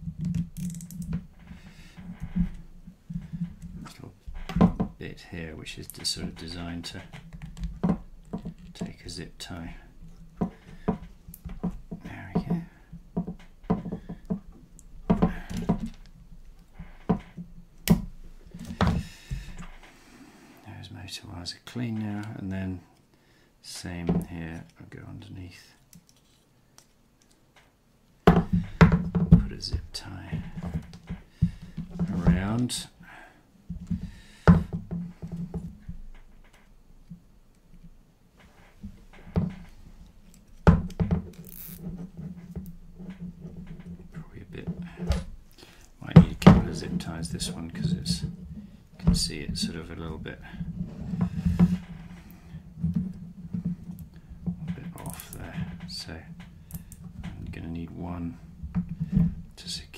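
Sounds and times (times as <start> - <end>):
handling clicks and knocks: 0.0 - 5.0, 5.8 - 19.9, 25.8 - 32.9, 33.7 - 58.0
sharp handling knocks: 28.2 - 32.7.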